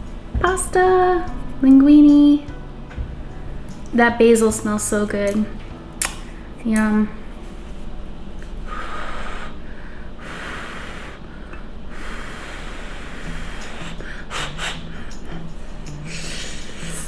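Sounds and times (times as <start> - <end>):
sharp clicks: 6.0 - 6.2
person breathing while eating: 8.7 - 17.0.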